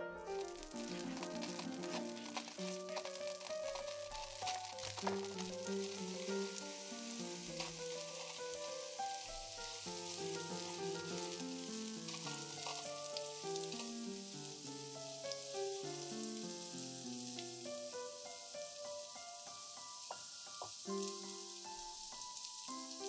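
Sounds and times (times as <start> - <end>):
soft background music: 0.0 - 23.0
onions sizzling in a frying pan: 0.2 - 23.0
spatula stirring in a pan: 0.3 - 14.7.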